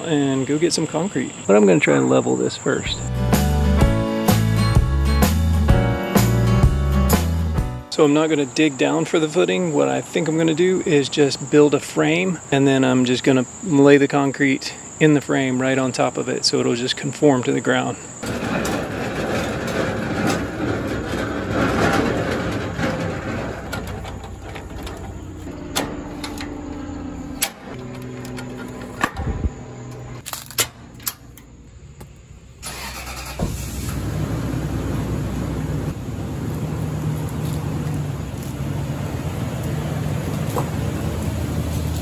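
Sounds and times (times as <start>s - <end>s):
metal clicks and clanks: 18.2s - 29.3s
vehicle engine running: 18.2s - 30.2s, 33.5s - 42.0s.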